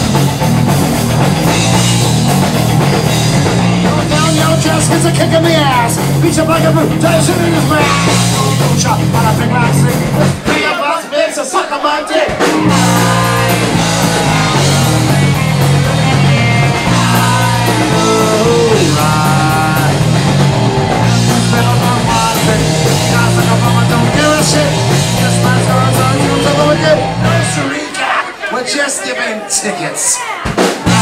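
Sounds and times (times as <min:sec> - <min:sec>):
electric guitar: 0:00.0 - 0:10.6, 0:12.3 - 0:27.7
bass guitar: 0:00.0 - 0:10.7, 0:12.2 - 0:28.1, 0:30.5 - 0:31.0
person singing: 0:03.8 - 0:20.4, 0:21.1 - 0:28.3.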